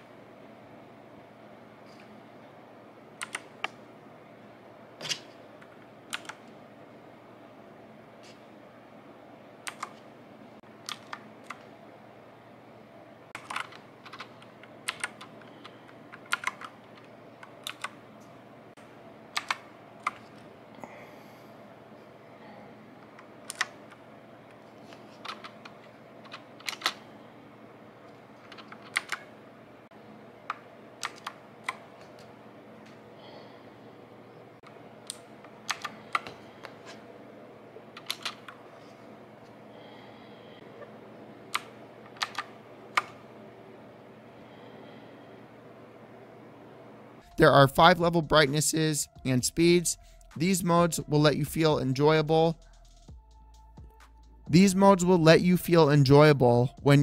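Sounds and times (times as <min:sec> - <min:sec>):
mechanical keyboard clicks: 0:03.2 - 0:03.7, 0:06.1 - 0:06.4, 0:09.6 - 0:10.0, 0:10.8 - 0:11.6, 0:13.4 - 0:15.4, 0:16.1 - 0:18.0, 0:19.4 - 0:20.3, 0:23.5 - 0:23.7, 0:26.2 - 0:27.0, 0:28.5 - 0:29.2, 0:30.5 - 0:31.8, 0:35.1 - 0:36.3, 0:38.0 - 0:38.6, 0:41.5 - 0:43.2.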